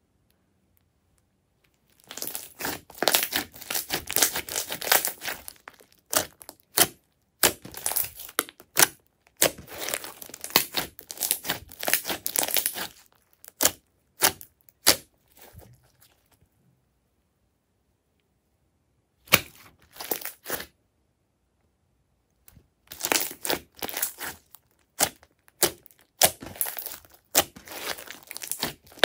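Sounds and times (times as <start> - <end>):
slime crackling and popping: 1.7 - 15.7, 19.3 - 20.7, 22.9 - 29.0.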